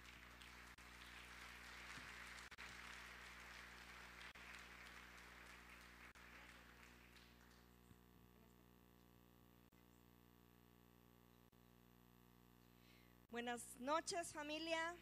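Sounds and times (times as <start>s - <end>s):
faint applause: 0.0s - 7.8s
low electrical hum: 0.0s - 15.0s.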